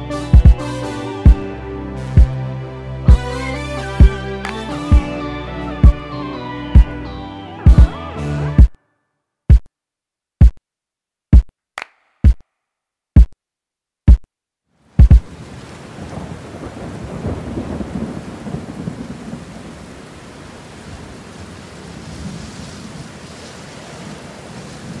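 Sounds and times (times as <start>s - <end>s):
deep drum machine kicks: 0.4s - 0.6s, 2.2s - 2.4s, 7.7s - 8.0s, 15.0s - 15.3s
heavy rain: 14.8s - 25.0s
thunder rumbling: 15.2s - 25.0s.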